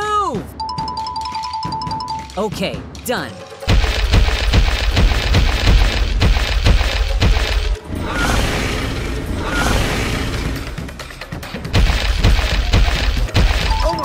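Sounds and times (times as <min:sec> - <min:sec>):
monster thudding stomps: 0:03.7 - 0:07.8, 0:11.6 - 0:13.8.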